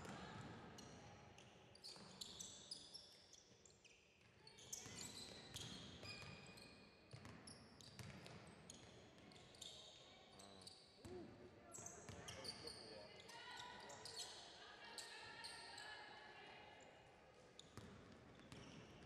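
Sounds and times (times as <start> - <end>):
sneakers squeaking on court: 7.1 - 10.9, 17.6 - 19.0.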